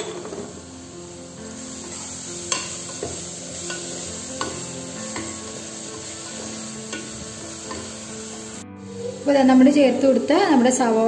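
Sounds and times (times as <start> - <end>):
onions sizzling in oil: 0.0 - 10.9.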